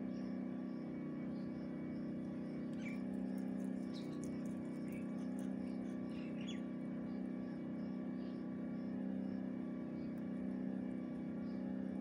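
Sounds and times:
low mechanical hum: 0:00.0 - 0:12.0
faint bird chirps: 0:02.4 - 0:07.6.

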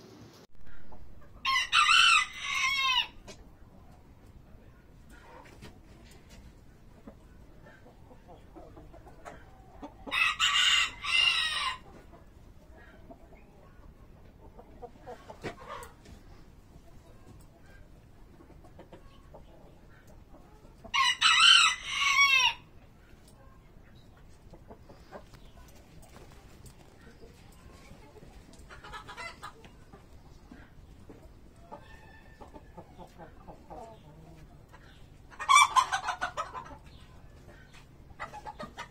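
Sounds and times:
rooster crowing: 0:01.4 - 0:03.2, 0:10.1 - 0:11.8, 0:20.9 - 0:22.6.

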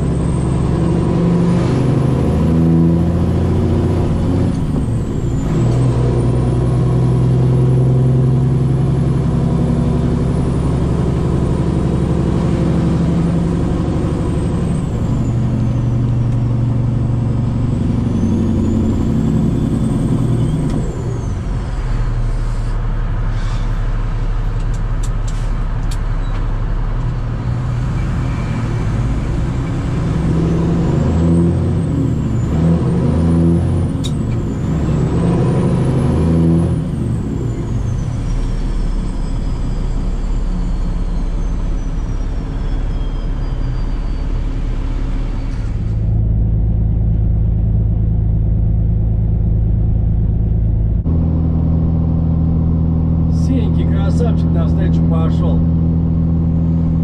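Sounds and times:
truck diesel engine running: 0:00.0 - 0:57.0.

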